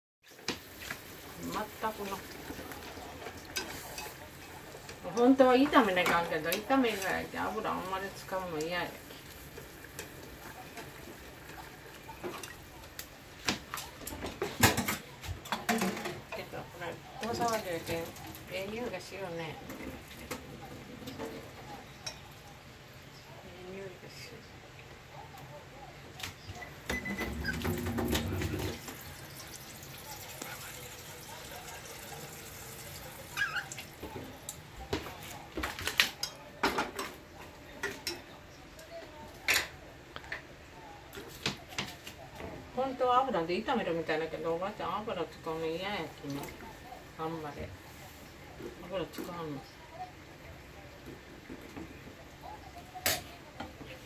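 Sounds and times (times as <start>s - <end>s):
cooking utensils clicking and knocking: 0.2s - 22.6s, 26.2s - 42.6s, 50.9s - 54.0s.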